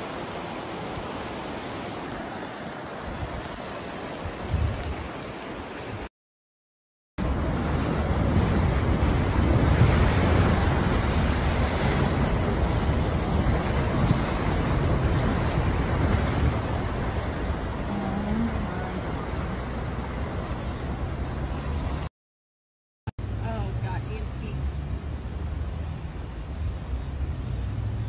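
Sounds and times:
churning floodwater rushing: 0.0 - 6.1, 7.2 - 22.1
wind buffeting microphone: 4.2 - 5.1, 7.2 - 21.9.

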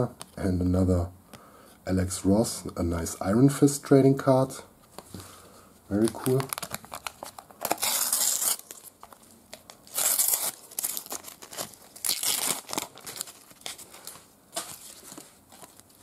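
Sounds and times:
paper tearing and crinkling: 5.9 - 8.9, 9.6 - 16.0
paper rustling: 5.9 - 16.0.

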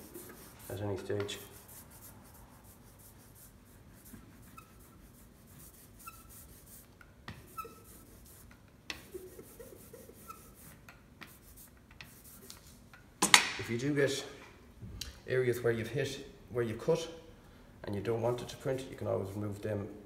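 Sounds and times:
ink roller rubbing: 0.0 - 12.6.

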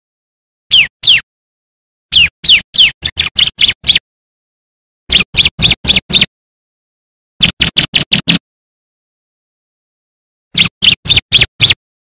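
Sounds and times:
bird whistling and chirping: 0.7 - 1.2, 2.1 - 4.0, 5.1 - 6.3, 10.6 - 11.8.

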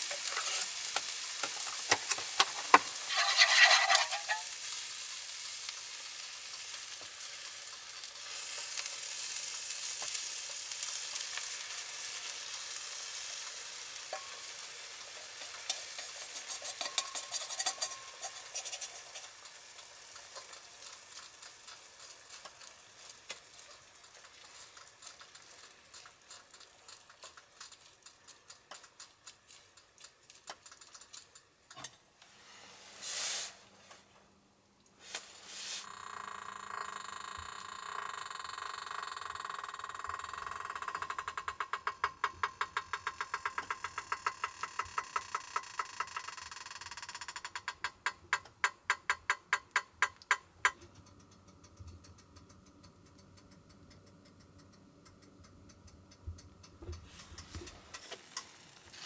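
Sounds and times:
food sizzling on hot plate: 0.0 - 33.7, 35.0 - 36.0, 40.0 - 47.6, 56.1 - 59.0
rustle: 35.0 - 35.9.

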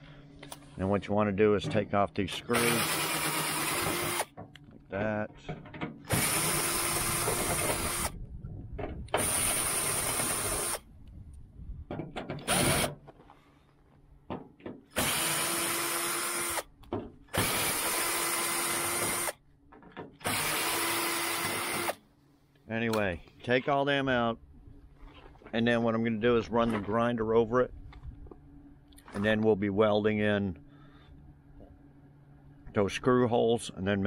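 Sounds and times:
cordless drill whining: 2.5 - 4.3, 6.1 - 8.2, 9.2 - 10.8, 12.4 - 12.9, 15.0 - 16.7, 17.3 - 19.4, 20.2 - 22.0.

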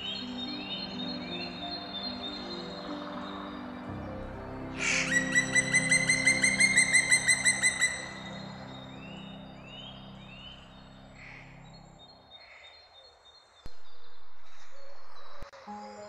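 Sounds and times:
faint bird sounds: 0.0 - 16.0
woodpecker ringing calls: 4.8 - 9.8.

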